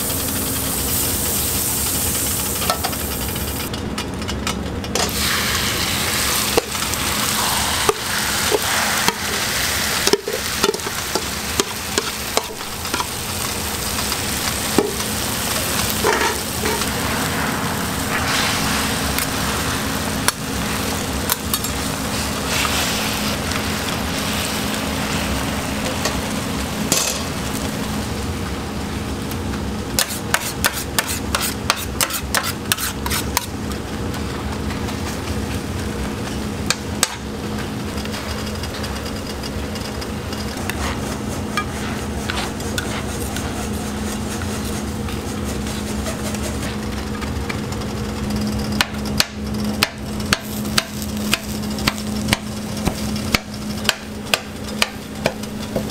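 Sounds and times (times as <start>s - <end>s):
food frying on a griddle: 0.0s - 55.9s
steady hum: 0.0s - 55.9s
metal scraper striking griddle: 16.0s - 16.9s, 30.0s - 33.5s.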